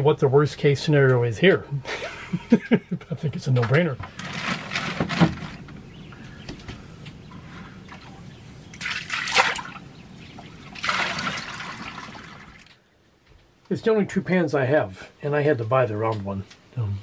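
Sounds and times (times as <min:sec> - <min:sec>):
water splashing from bucket: 0:08.7 - 0:09.8, 0:10.4 - 0:12.7.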